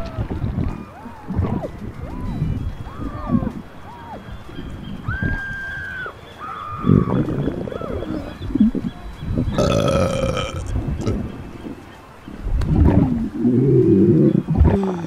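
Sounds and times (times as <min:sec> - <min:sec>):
low rumbling: 0:06.8 - 0:14.8
woman belching: 0:09.6 - 0:11.2.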